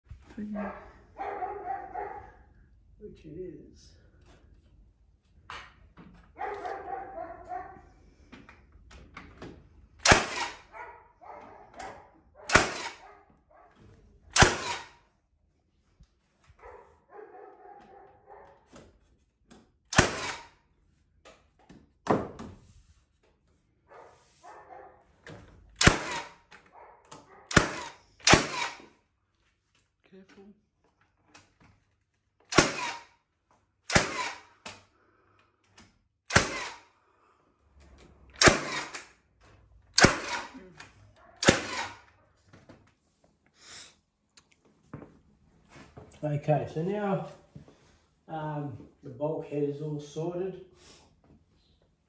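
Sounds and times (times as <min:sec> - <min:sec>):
nail gun shots: 0:10.0 - 0:10.7, 0:12.5 - 0:13.0, 0:14.3 - 0:15.0, 0:19.9 - 0:20.6, 0:25.8 - 0:26.6, 0:27.5 - 0:28.9, 0:32.5 - 0:33.2, 0:33.8 - 0:34.9, 0:36.3 - 0:36.9, 0:38.4 - 0:39.1, 0:39.9 - 0:40.6, 0:41.4 - 0:42.1.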